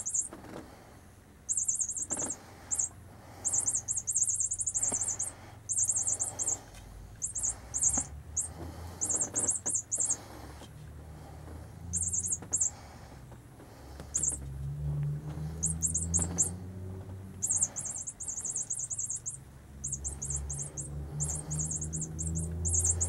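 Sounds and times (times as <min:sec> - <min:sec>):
toy mouse chirping squeaks: 0:00.0 - 0:00.4, 0:01.5 - 0:10.4, 0:11.9 - 0:12.8, 0:14.1 - 0:14.4, 0:15.4 - 0:16.6, 0:17.4 - 0:23.0.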